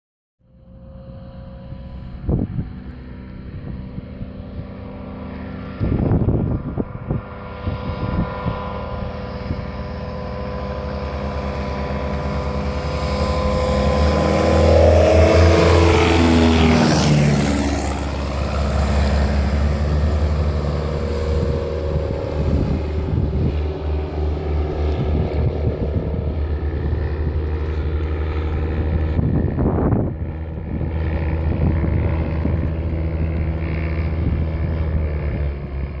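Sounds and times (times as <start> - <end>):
biplanes flying past: 0.4 - 36.0.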